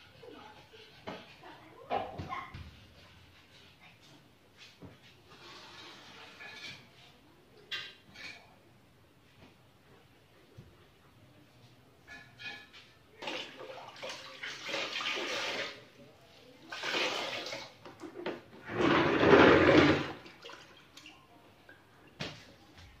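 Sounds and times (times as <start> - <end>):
water sloshing in a bucket: 13.1 - 22.2
water dripping: 20.2 - 21.8.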